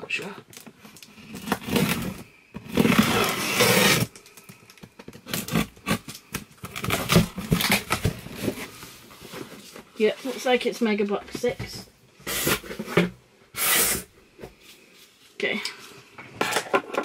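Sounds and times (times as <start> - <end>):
scissors tearing packing tape: 2.7 - 4.4, 5.2 - 8.0, 13.6 - 14.1.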